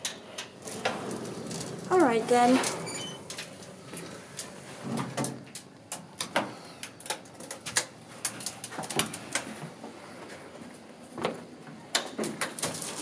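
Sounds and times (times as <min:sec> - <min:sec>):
elevator gate clattering: 0:00.0 - 0:03.8.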